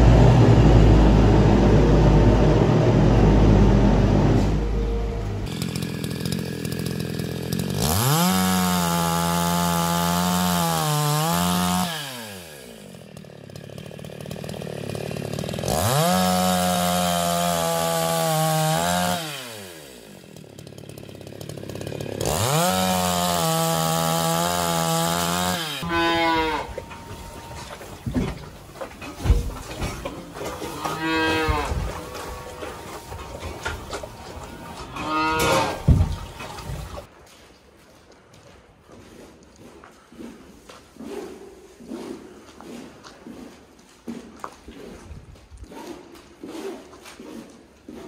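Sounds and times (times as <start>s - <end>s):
chainsaw idling: 4.9s - 37.1s
chainsaw cutting wood: 5.4s - 37.1s.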